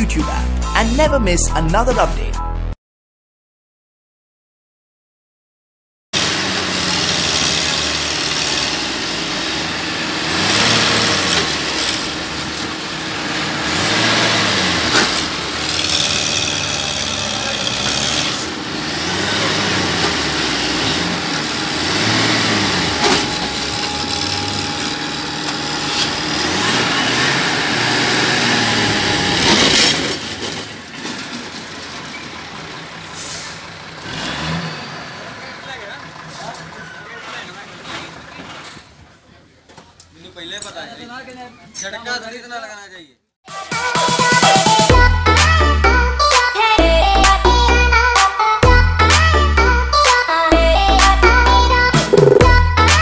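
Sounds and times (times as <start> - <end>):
diesel engines revving under load: 6.2 - 39.2.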